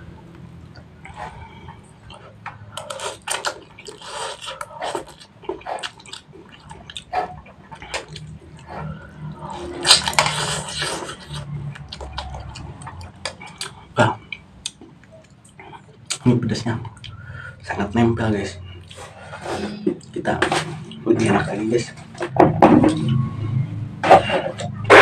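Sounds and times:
wet chewing mouth sounds: 0.3s - 17.4s.

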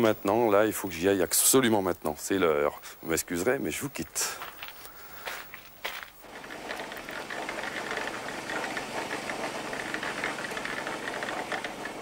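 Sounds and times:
concrete mixer running: 6.2s - 12.0s.

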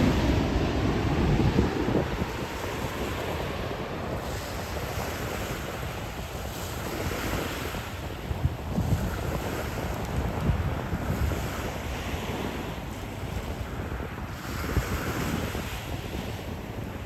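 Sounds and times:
small waves on shore: 0.0s - 17.0s
wind buffeting microphone: 0.0s - 17.0s.

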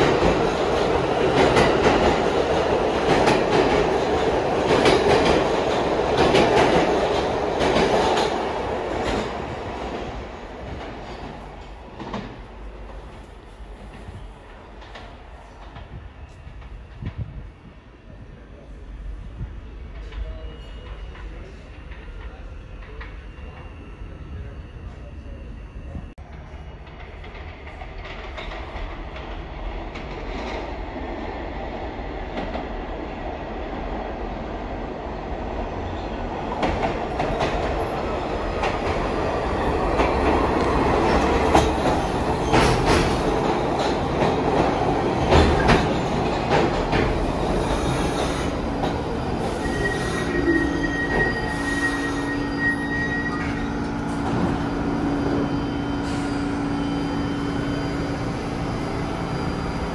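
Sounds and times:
subway train rumble: 0.0s - 59.9s
high brake squeal: 49.3s - 59.9s.

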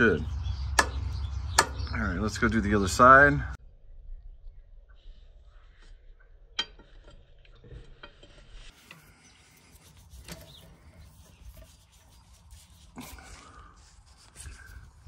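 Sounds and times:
faint metal scraping: 6.6s - 15.0s.

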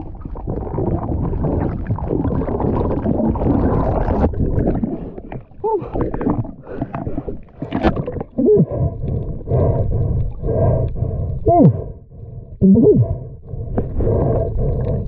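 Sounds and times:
underwater water churning: 0.0s - 15.0s
snorkeler breathing: 4.8s - 15.0s
gurgling falling in pitch: 12.6s - 13.3s.

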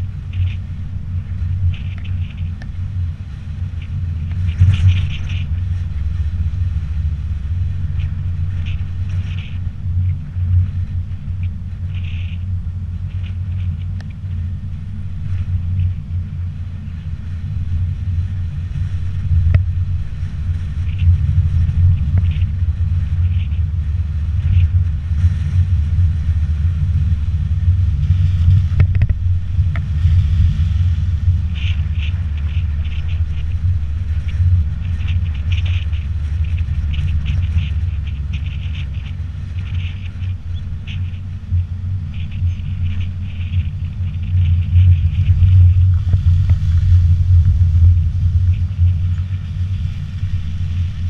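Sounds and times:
wind rumble on microphone: 0.0s - 51.0s.

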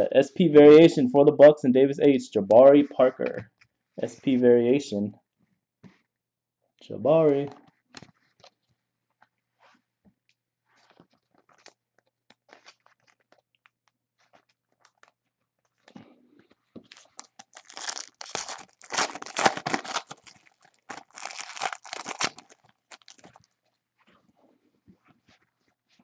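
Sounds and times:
foil wrapper tearing and crinkling: 16.9s - 23.4s.

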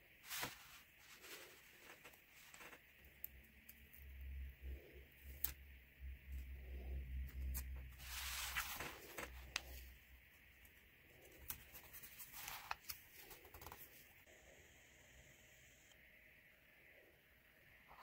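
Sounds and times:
paper rustling: 0.2s - 3.0s, 7.4s - 9.9s, 11.2s - 14.1s.

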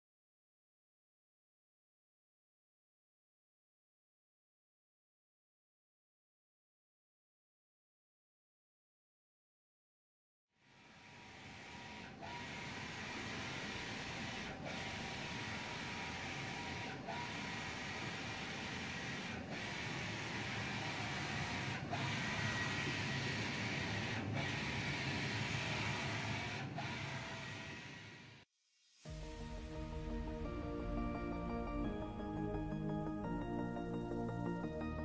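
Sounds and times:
printer carriage sweeping: 11.1s - 28.0s.

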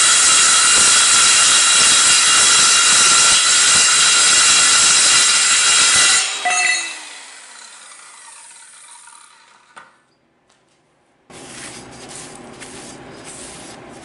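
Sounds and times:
circular saw spinning down: 3.9s - 9.8s
faint scratching: 11.3s - 14.0s.

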